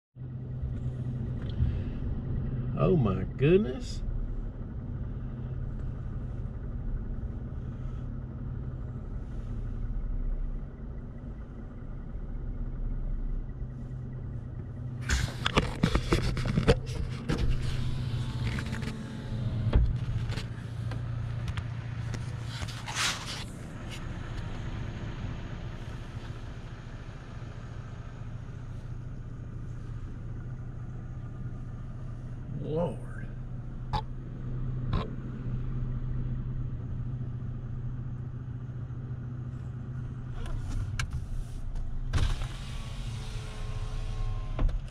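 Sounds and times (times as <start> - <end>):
car engine and road hum: 0.2 - 44.9
knocks and rustling: 15.0 - 17.8.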